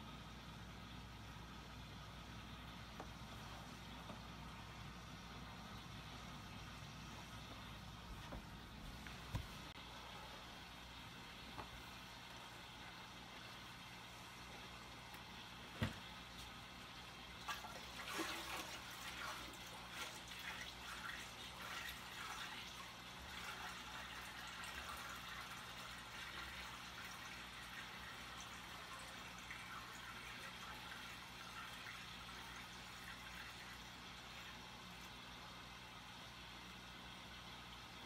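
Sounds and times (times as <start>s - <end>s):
low steady hum: 0.0s - 38.0s
water trickling in aquarium: 9.0s - 38.0s.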